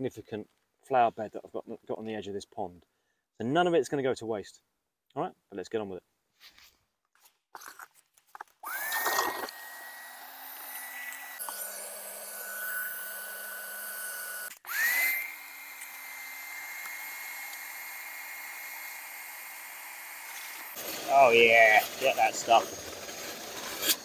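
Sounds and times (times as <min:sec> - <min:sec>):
pond vacuum motor whine: 0:08.6 - 0:23.3.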